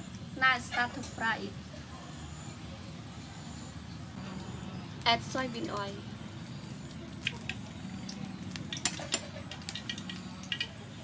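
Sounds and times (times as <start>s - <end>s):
oil crackling and popping: 4.3s - 11.0s.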